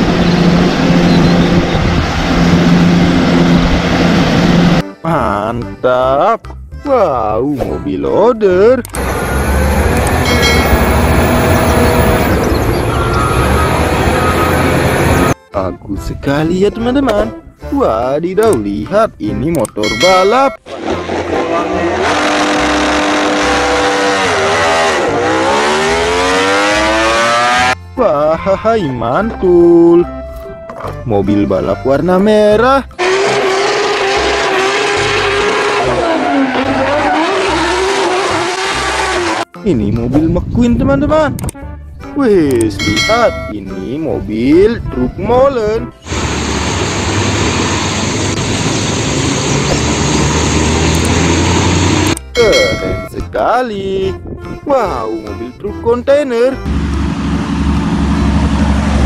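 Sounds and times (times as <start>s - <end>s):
truck engine running: 0.0s - 4.8s, 8.8s - 15.4s, 46.0s - 53.1s, 56.6s - 59.0s
motorcycle engine revving: 9.0s - 15.4s, 20.7s - 27.8s, 33.0s - 39.5s, 46.0s - 52.2s, 56.6s - 59.0s
tyres hissing on wet road: 46.0s - 52.1s.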